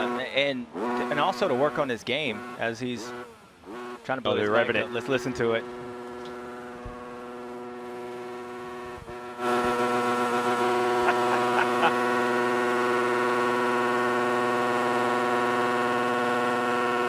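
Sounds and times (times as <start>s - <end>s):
motorbike engine revving: 0.0s - 17.0s.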